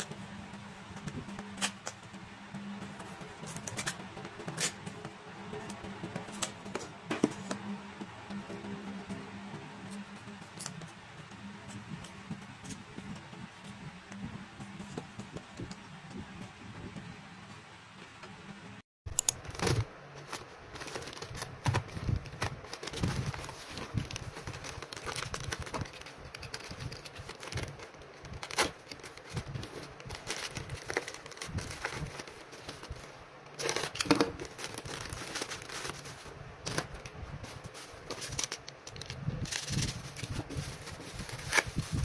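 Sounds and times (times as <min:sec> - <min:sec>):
plastic packaging crinkling: 0:19.1 - 0:42.0.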